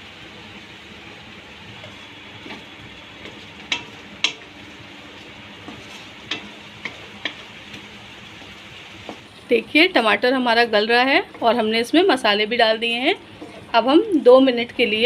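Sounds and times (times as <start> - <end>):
sauce sizzling in pan: 0.0 - 15.0
wooden spatula stirring: 1.7 - 9.4, 12.8 - 14.3
spatula knocking against pan: 3.2 - 4.5, 5.6 - 7.5.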